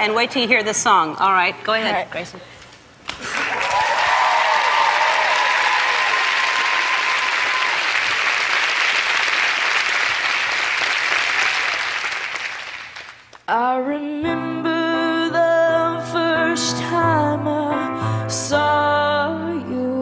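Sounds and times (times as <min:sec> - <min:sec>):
audience applauding: 0:03.1 - 0:13.4
audience cheering: 0:03.2 - 0:13.0.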